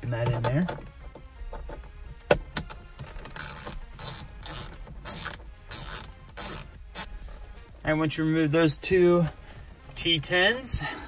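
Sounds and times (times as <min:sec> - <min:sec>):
screw turning clicking rattle: 0:03.0 - 0:07.1.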